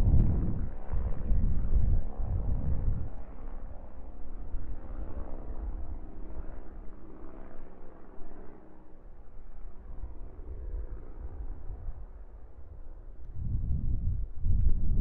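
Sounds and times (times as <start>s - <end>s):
wind buffeting microphone: 0.0s - 6.0s, 9.9s - 15.0s
steady low outdoor rumble: 0.0s - 15.0s.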